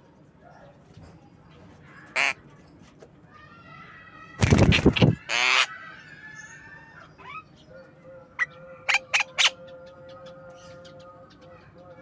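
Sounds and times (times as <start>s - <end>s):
myna bird calling: 4.4s - 7.7s, 8.4s - 11.7s.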